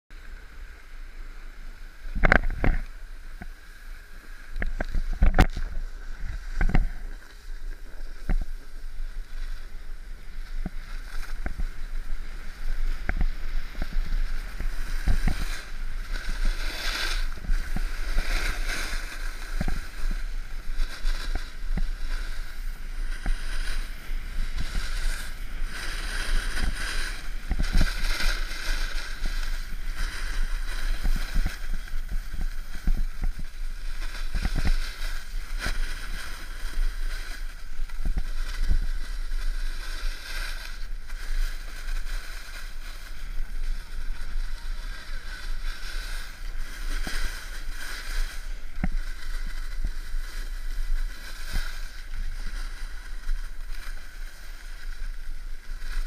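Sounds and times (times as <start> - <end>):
snowboard scraping over snow: 0.2 - 56.0.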